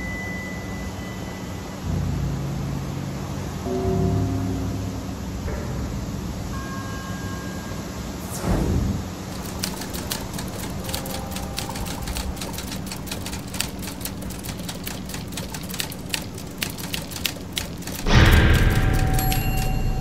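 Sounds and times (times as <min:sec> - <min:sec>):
steady low hum: 0:08.0 - 0:20.0.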